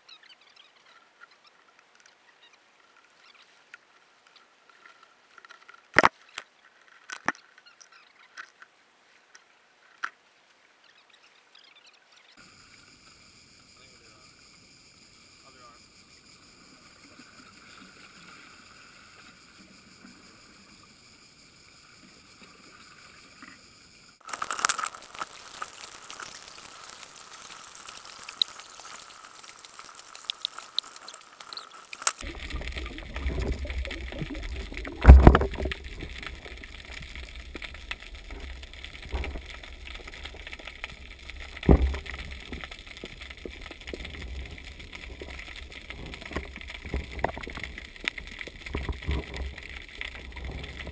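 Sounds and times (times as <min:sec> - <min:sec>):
muffled underwater water noise: 0:00.2 - 0:50.9
loud thumps: 0:33.3 - 0:36.2.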